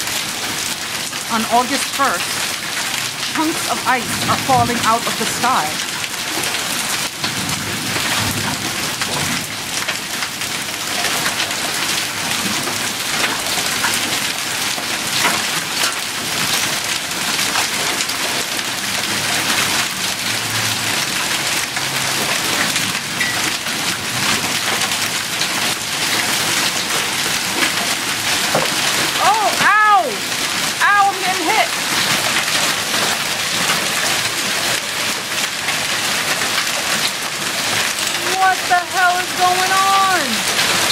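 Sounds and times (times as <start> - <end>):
hailstones ticking: 0.0 - 40.9
heavy rain on concrete: 0.0 - 40.9.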